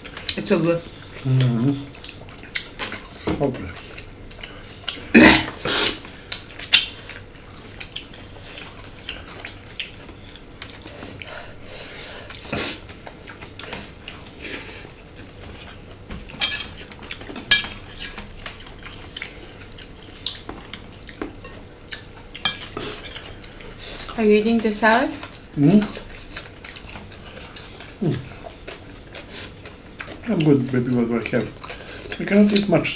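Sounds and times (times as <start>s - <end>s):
people chewing: 0.0s - 32.9s
utensils clinking on plates: 16.3s - 18.2s, 22.4s - 23.3s.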